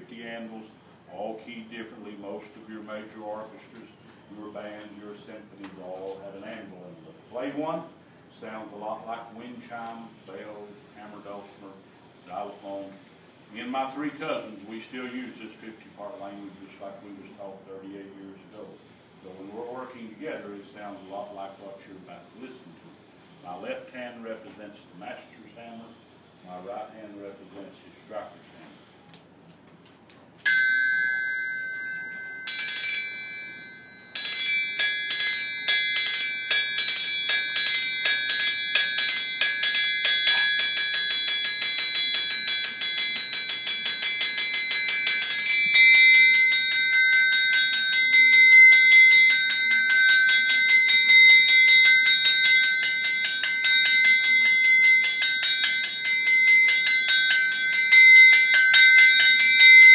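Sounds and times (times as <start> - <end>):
hammers ringing on an anvil: 30.5 - 59.9.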